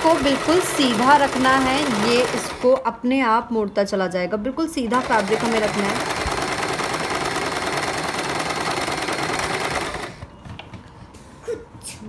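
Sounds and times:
sewing machine running: 0:00.0 - 0:02.9, 0:04.9 - 0:10.2.

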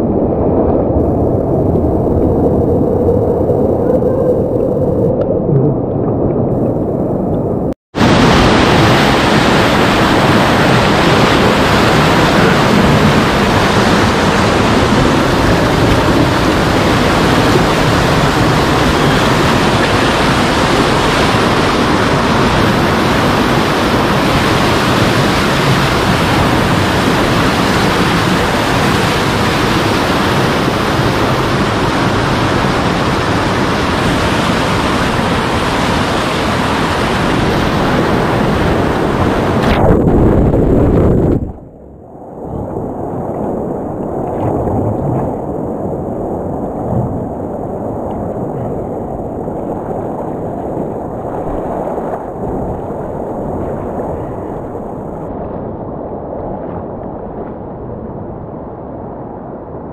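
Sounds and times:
river rushing over rock: 0:08.0 - 0:39.8.

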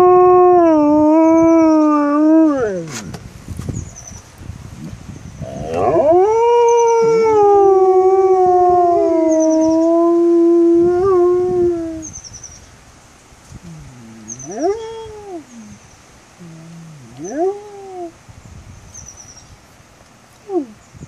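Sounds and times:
wolf howling: 0:00.0 - 0:02.9, 0:05.4 - 0:12.0, 0:13.7 - 0:15.8, 0:16.4 - 0:18.2.

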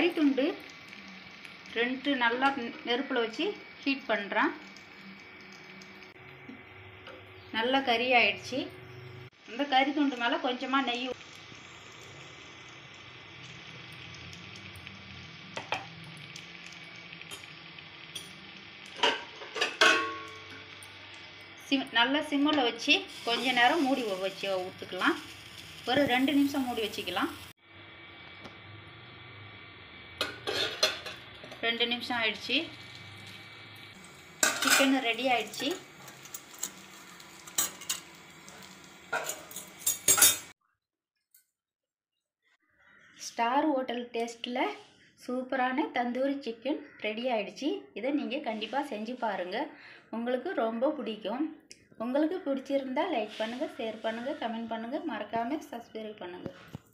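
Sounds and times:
ghee sizzling on hot charcoal: 0:00.0 - 0:40.6, 0:52.4 - 0:56.9
metal utensils clinking: 0:18.1 - 0:21.0, 0:30.2 - 0:31.6, 0:34.1 - 0:40.5.

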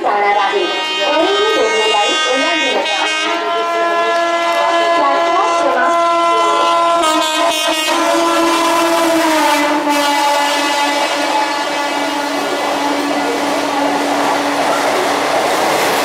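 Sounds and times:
locomotive air horn blast: 0:00.4 - 0:14.9
wheels rattling on rails: 0:06.2 - 0:16.0.

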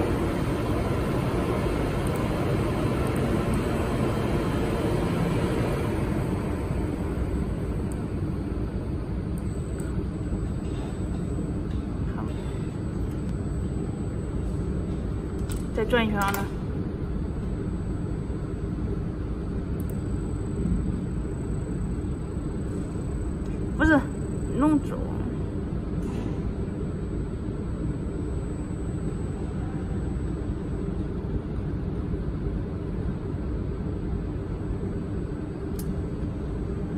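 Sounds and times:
welding machine humming: 0:00.0 - 0:11.1
high-pitched whine: 0:00.0 - 0:36.9
low machinery rumble: 0:00.0 - 0:36.9.

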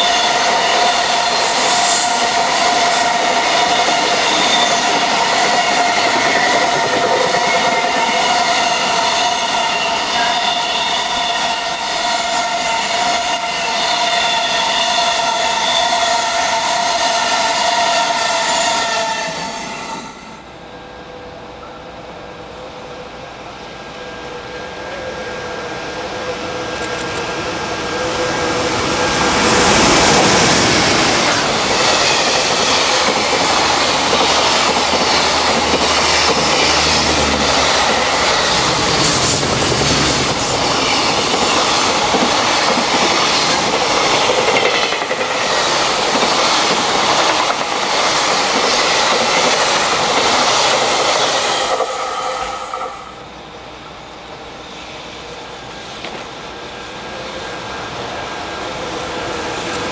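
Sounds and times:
train wheels clacking: 0:00.0 - 0:19.5, 0:28.9 - 0:53.0
train motor whine: 0:00.0 - 0:46.8.

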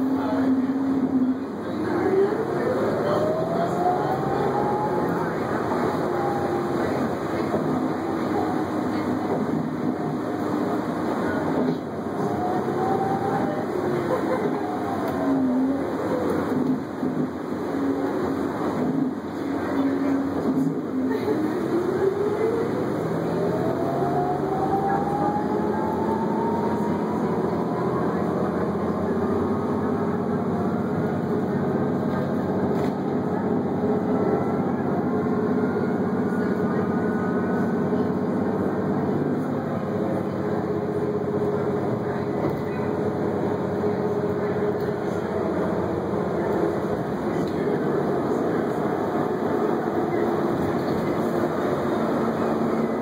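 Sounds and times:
bus drivetrain hum: 0:00.0 - 0:53.0.

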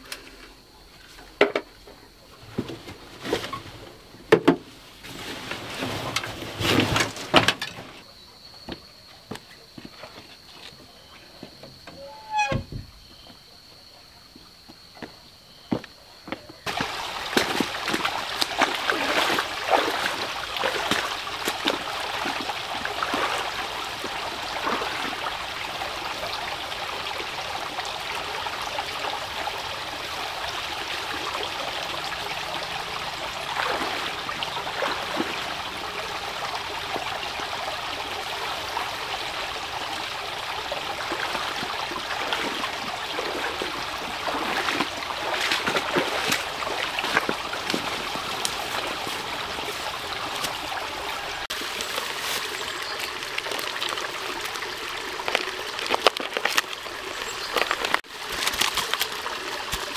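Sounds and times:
stream trickling: 0:16.6 - 0:59.9
water scooped and poured: 0:42.1 - 0:50.7, 0:51.5 - 0:59.9.

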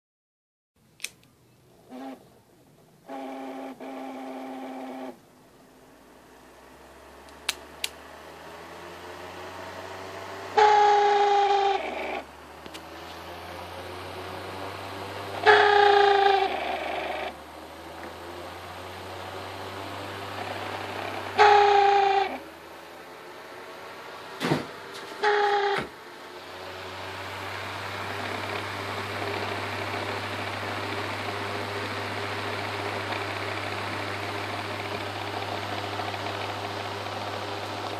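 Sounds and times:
sharp clicks: 0:01.0 - 0:01.3
fan motor whirring: 0:01.0 - 0:37.9.

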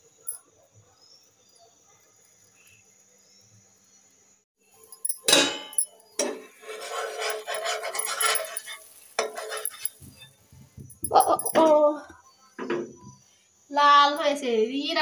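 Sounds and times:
metal spatula scraping frying pan: 0:05.5 - 0:10.4.

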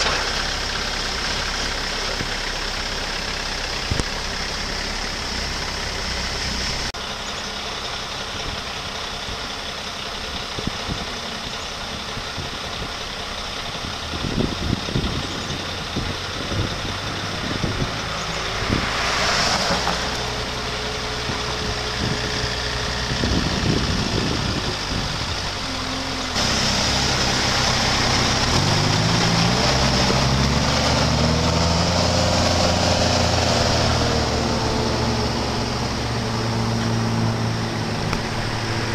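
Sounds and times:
forklift engine running: 0:00.0 - 0:38.9
car passing by: 0:18.0 - 0:20.8.

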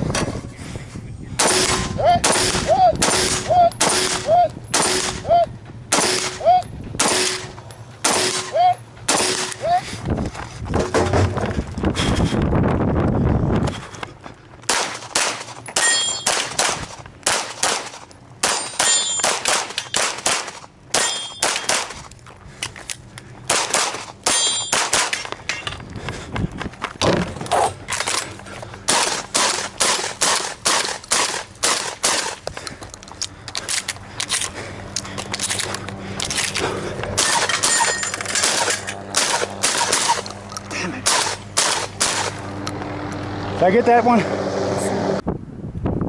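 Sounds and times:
pistol shots: 0:01.4 - 0:05.2, 0:05.9 - 0:06.4, 0:07.0 - 0:09.6, 0:14.7 - 0:22.0, 0:23.5 - 0:25.2, 0:28.9 - 0:32.4, 0:37.2 - 0:40.2, 0:41.0 - 0:42.4
shotgun shots: 0:01.4 - 0:05.3, 0:05.9 - 0:06.4, 0:07.0 - 0:09.6, 0:14.7 - 0:22.0, 0:23.5 - 0:25.2, 0:28.9 - 0:32.4, 0:37.2 - 0:40.2, 0:41.0 - 0:42.4
steel targets ringing: 0:15.8 - 0:16.6, 0:18.4 - 0:20.0, 0:20.9 - 0:21.8, 0:24.2 - 0:25.7, 0:37.2 - 0:38.9.

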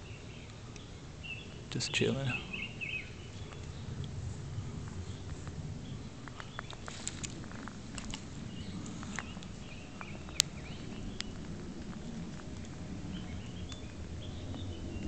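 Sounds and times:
faint bird chirps: 0:00.0 - 0:11.5
low rumble: 0:02.3 - 0:15.0.

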